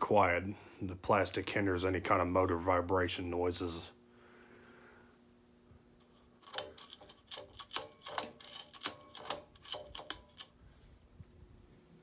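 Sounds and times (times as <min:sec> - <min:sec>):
ceiling fan motor hum: 0:00.0 - 0:12.0
metal pull chain clicking: 0:06.4 - 0:10.5.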